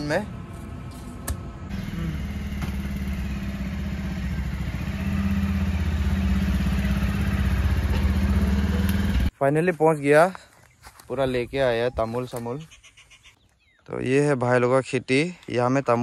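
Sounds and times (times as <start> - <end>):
motorcycle engine at low revs: 0.5 - 9.3.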